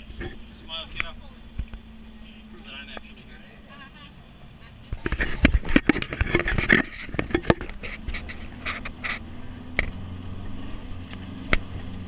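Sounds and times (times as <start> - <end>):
truck engine running: 0.0 - 12.0
camera handling knocks and rubbing: 5.0 - 9.2.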